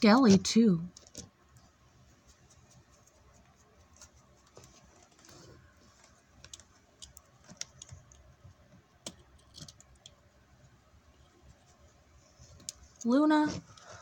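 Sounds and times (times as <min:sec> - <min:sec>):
light clicks and taps of handling: 0:02.3 - 0:10.3.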